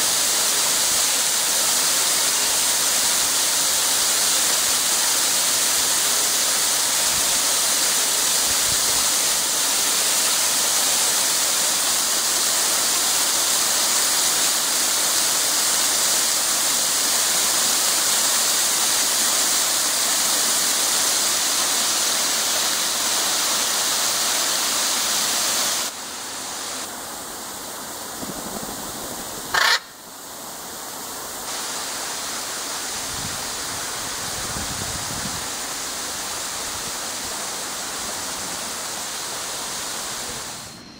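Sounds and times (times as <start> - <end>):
waterfall rushing into a pool: 0.0 - 28.1, 29.2 - 40.7
macaw squawk: 29.5 - 30.0.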